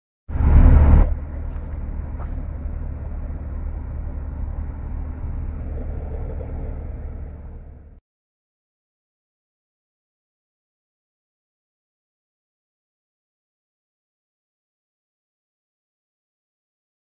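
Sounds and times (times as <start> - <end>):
road and engine rumble in vehicle: 0.3 - 8.0.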